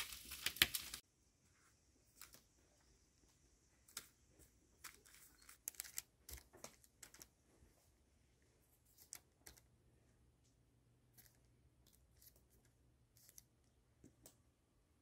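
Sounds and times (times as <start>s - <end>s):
baking paper crinkling and tapping: 0.0s - 1.0s.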